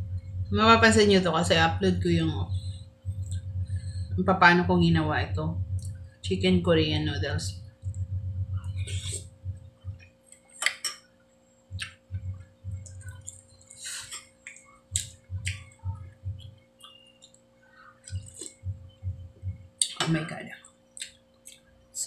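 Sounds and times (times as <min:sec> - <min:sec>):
chewing: 0:12.8 - 0:15.8, 0:16.4 - 0:18.6.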